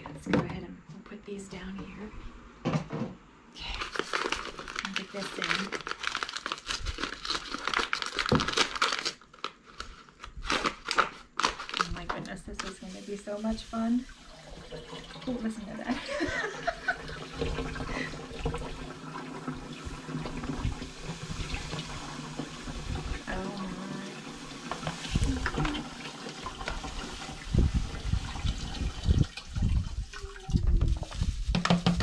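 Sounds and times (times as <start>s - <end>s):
paper bag thumps: 8.1s - 9.0s, 31.2s - 32.0s.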